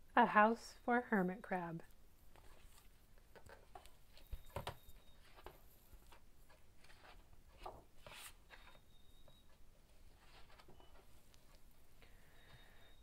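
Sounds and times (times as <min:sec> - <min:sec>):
book pages rustling and knocks: 0:02.4 - 0:08.8.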